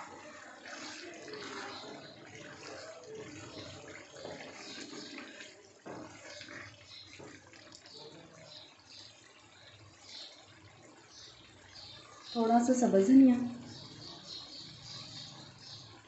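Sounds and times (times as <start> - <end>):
wooden spatula stirring thick curry: 0.0 - 9.2.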